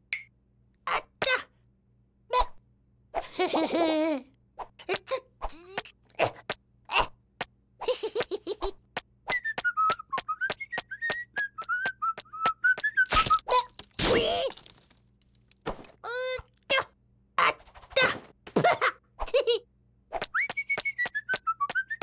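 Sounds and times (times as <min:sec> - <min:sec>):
footsteps tapping on wooden planks: 0:08.2 - 0:13.1
cartoon whistling a wavering tune: 0:20.3 - 0:22.0.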